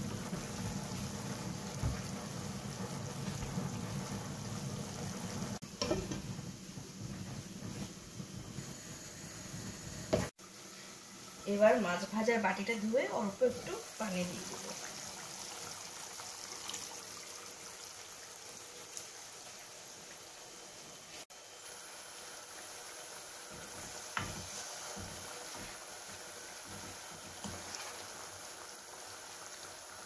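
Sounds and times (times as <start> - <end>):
curry sizzling and bubbling: 0.0 - 30.0
water trickling into a pan: 13.7 - 21.1.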